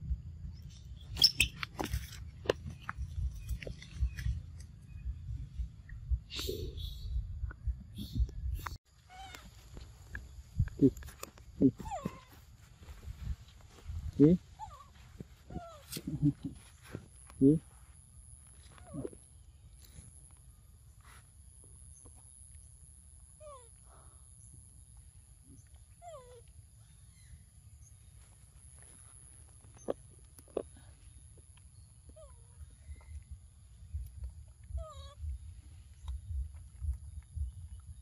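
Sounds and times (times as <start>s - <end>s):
faint low rumble: 1.9s - 8.8s, 30.2s - 38.0s
young monkey calling: 9.1s - 9.6s, 10.8s - 12.4s, 14.2s - 16.6s, 34.6s - 35.4s.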